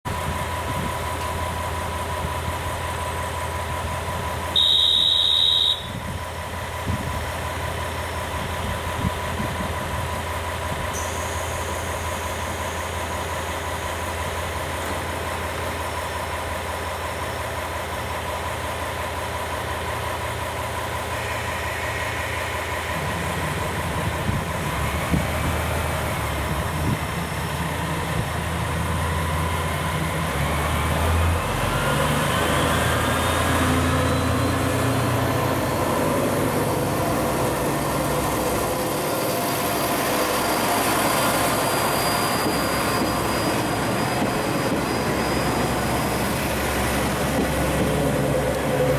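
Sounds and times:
diesel railcar engine idling: 0.1s - 48.9s
loud high-pitched tone: 4.5s - 6.2s, 20.7s - 24.8s, 38.4s - 47.2s.

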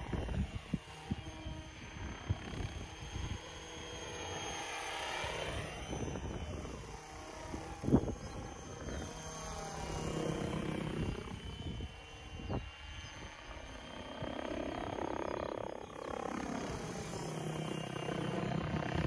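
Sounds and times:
wind noise on microphone: 0.0s - 3.4s, 5.5s - 9.2s, 10.5s - 13.2s
helicopter rotor whoosh: 0.0s - 19.0s.

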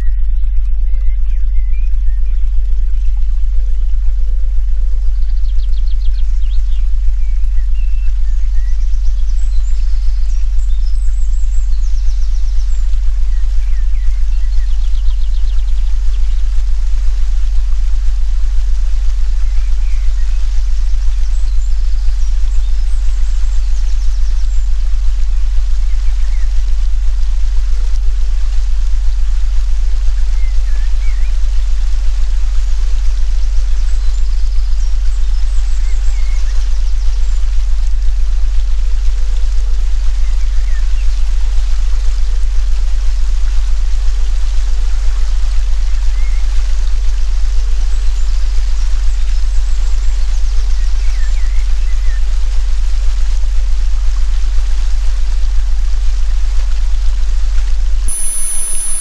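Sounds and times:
songbird chirps and trills: 0.0s - 16.2s, 58.1s - 59.0s
deep pulsing electronic tone: 0.0s - 41.2s, 58.0s - 59.0s
soft hiss like running water: 58.0s - 59.0s
birds chirping and trilling: 58.1s - 59.0s.

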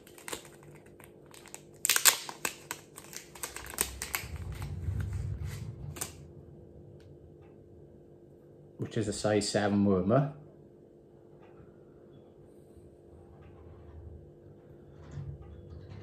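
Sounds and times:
plastic packet crinkling: 0.0s - 4.7s.

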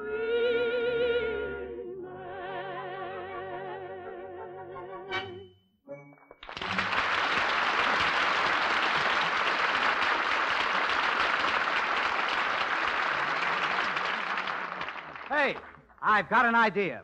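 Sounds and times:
audience applauding: 6.4s - 16.3s.

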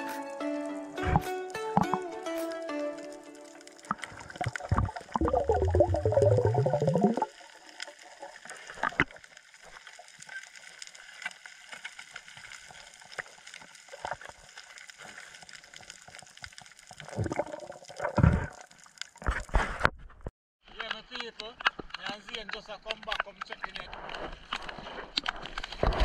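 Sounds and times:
background music: 0.0s - 6.5s
water gurgling and lapping: 3.8s - 9.8s, 17.0s - 19.6s.

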